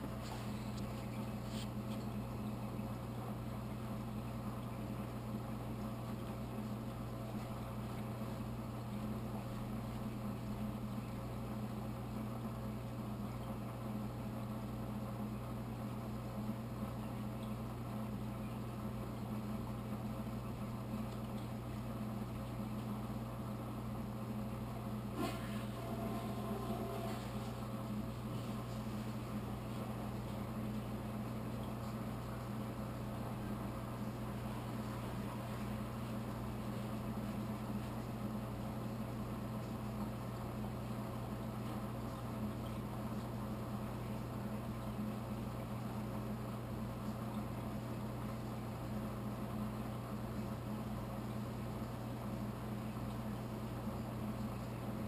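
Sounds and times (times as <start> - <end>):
low electric motor hum: 0.0 - 55.0
faint high tone: 25.2 - 27.6.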